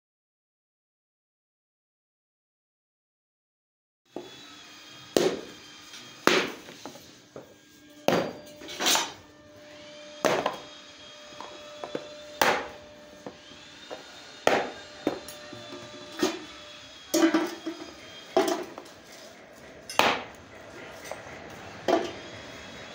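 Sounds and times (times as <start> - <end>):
metal bar striking wax: 8.0 - 9.2, 11.4 - 13.3, 13.9 - 16.5, 17.1 - 19.3, 19.9 - 20.4.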